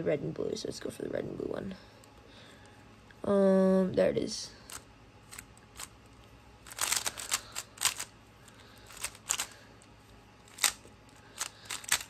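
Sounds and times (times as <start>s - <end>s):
puzzle cube plastic clicks: 6.7s - 8.1s, 8.9s - 9.6s, 10.5s - 12.0s.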